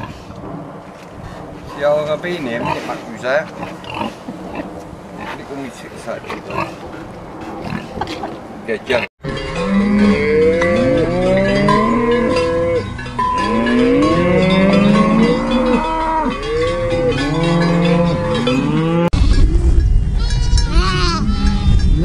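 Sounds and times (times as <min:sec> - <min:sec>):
cattle mooing: 0:09.3 - 0:19.2.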